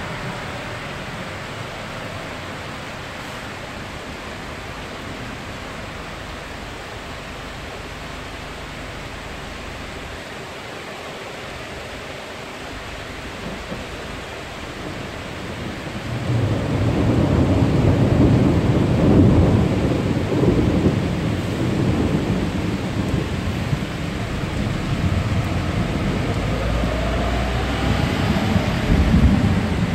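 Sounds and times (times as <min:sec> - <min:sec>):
rain hissing: 0:00.0 - 0:29.9
thunder rumbling: 0:13.1 - 0:29.9.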